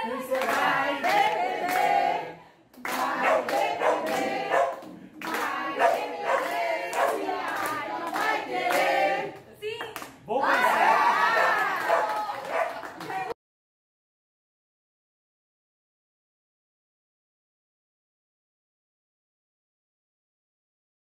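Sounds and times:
people singing together: 0.0 - 9.5
people clapping in time: 0.3 - 2.0, 2.7 - 13.4.

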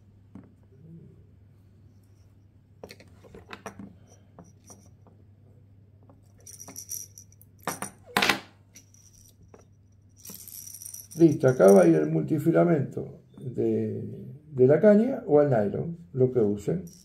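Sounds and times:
low steady hum: 0.0 - 17.0
metallic jingle: 6.4 - 8.0, 8.8 - 12.2.

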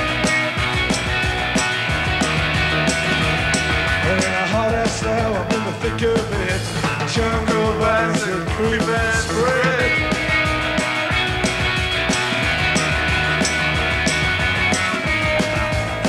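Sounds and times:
live rock band playing: 0.0 - 16.0.

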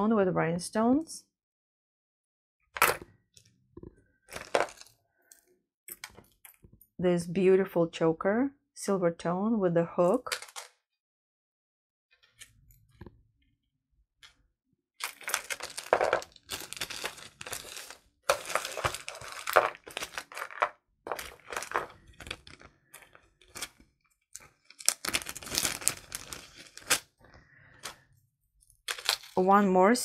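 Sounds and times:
plastic bag crinkling: 4.3 - 5.0, 15.0 - 23.8, 24.4 - 27.1, 28.8 - 29.5.

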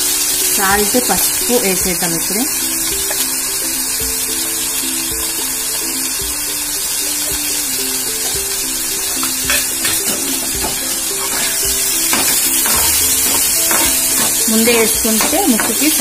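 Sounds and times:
background music with held notes: 0.0 - 16.0
chicken sizzling in hot oil: 0.0 - 16.0.

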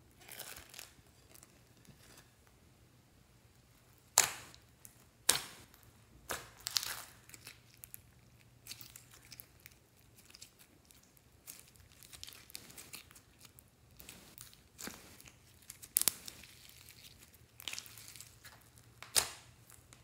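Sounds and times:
slime crackling and squishing: 0.2 - 1.5, 4.0 - 20.0.

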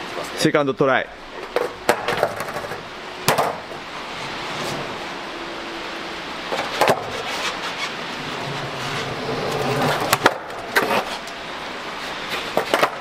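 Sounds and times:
skateboard wheels rolling on concrete: 1.2 - 13.0
skateboard clacks: 1.3 - 3.8, 6.5 - 11.4, 12.3 - 13.0.

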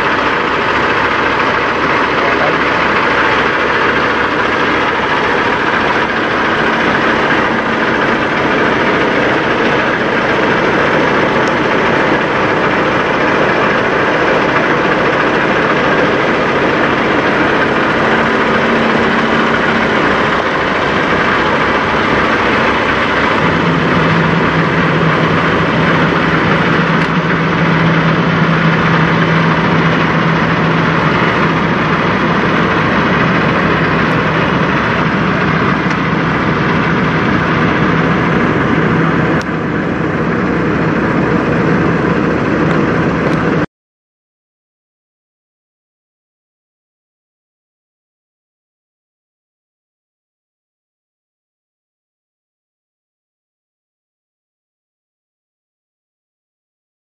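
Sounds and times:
diesel truck engine idling: 0.0 - 43.7
low hum: 0.0 - 43.7.

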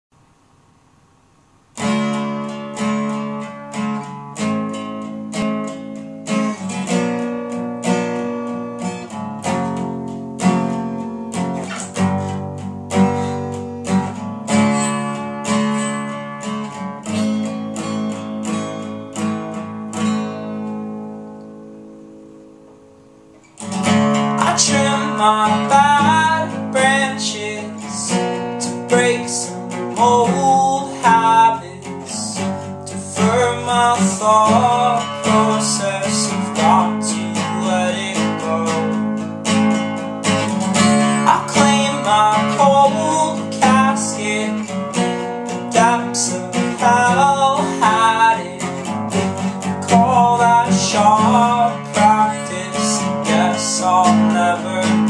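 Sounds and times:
acoustic guitar: 0.1 - 55.0
man singing: 23.9 - 39.3, 40.8 - 55.0.

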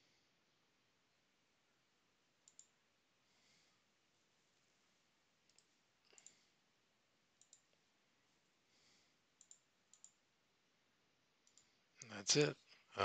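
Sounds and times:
computer mouse clicks: 2.4 - 2.8, 5.5 - 6.5, 7.4 - 7.8, 9.4 - 10.2, 11.4 - 12.1.

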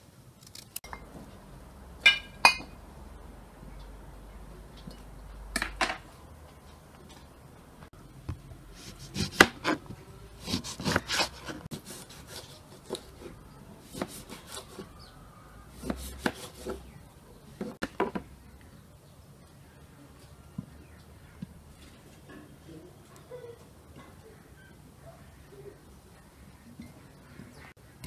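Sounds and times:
knife slicing on cutting board: 8.8 - 9.8, 10.4 - 14.8.

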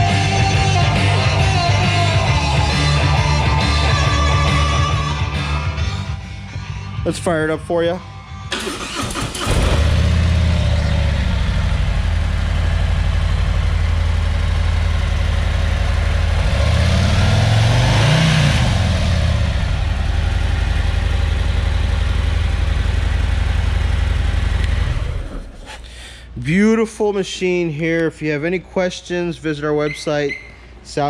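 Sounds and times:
motorcycle engine revving: 8.5 - 25.6
motorcycle engine idling: 8.6 - 16.6, 19.1 - 25.7.

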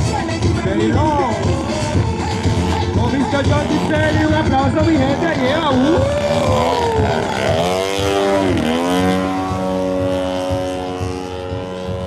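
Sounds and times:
model airplane motor and propeller: 0.0 - 12.0.

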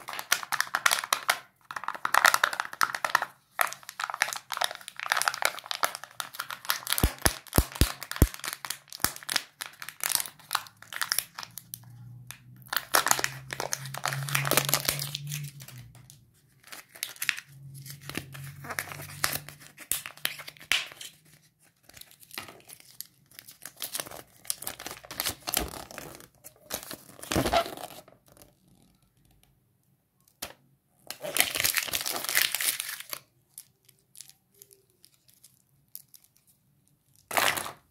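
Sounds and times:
handling plastic capsule: 0.0 - 25.6
foil crinkling and tearing: 2.0 - 11.8, 12.7 - 16.0, 16.6 - 28.0, 31.1 - 36.4.

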